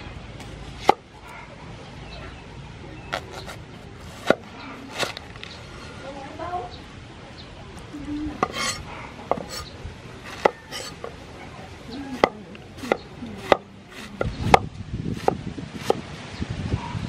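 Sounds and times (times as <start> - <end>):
cleaver chopping on wooden board: 3.1 - 5.2, 8.4 - 9.6, 10.3 - 11.1, 12.2 - 16.0.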